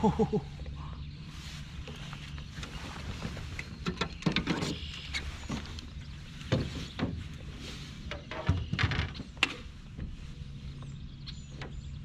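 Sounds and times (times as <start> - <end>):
steady low rumble: 0.0 - 12.0
person moving about in a canoe: 1.2 - 12.0
gear clattering on wooden deck: 3.6 - 5.8, 6.4 - 10.2.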